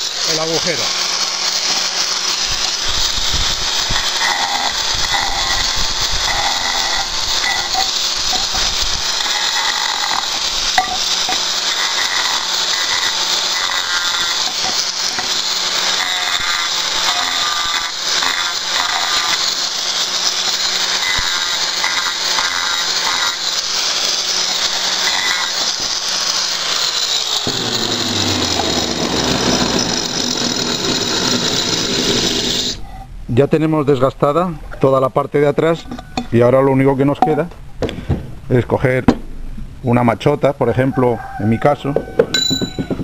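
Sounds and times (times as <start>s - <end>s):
angle grinder whine: 0.0s - 33.1s
disc grinding tile: 2.5s - 19.8s, 27.4s - 32.8s.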